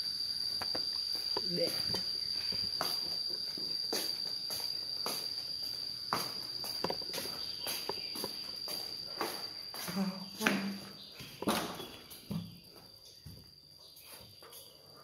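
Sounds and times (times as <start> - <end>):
steady high-pitched whine: 0.0 - 12.4
footsteps: 0.5 - 12.5.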